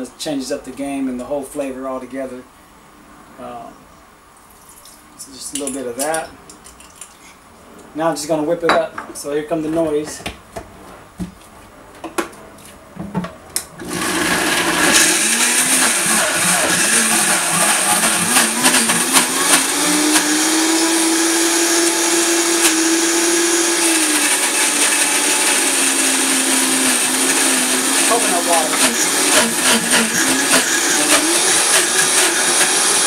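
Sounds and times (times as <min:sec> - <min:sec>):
blender running: 0:13.8 - 0:33.0.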